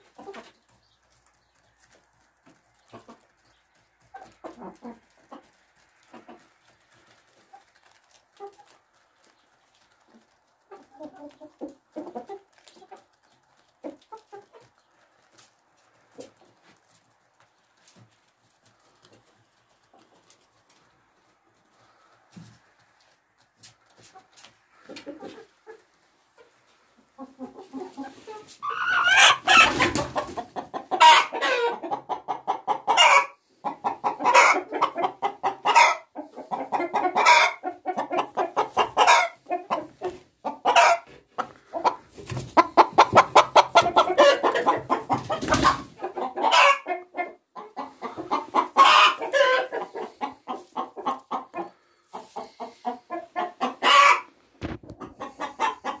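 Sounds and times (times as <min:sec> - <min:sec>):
hen cackling and squawking: 0:27.1 - 0:56.0.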